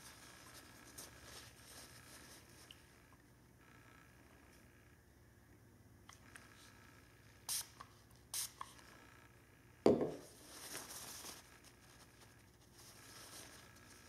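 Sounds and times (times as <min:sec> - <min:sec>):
paper napkin rustling: 0:00.0 - 0:02.6, 0:10.2 - 0:14.0
spray bottle hissing: 0:07.5 - 0:08.7.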